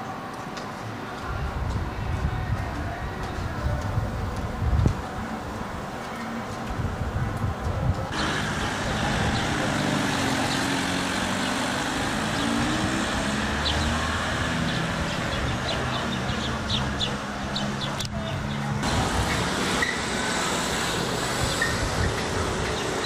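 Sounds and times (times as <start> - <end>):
road noise: 0.0 - 23.0
vehicle engine running: 8.1 - 23.0.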